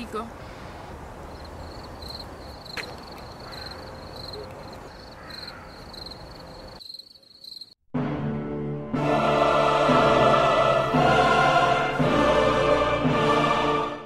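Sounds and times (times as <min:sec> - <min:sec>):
cricket chirping: 0:01.2 - 0:07.8
music: 0:08.0 - 0:14.0.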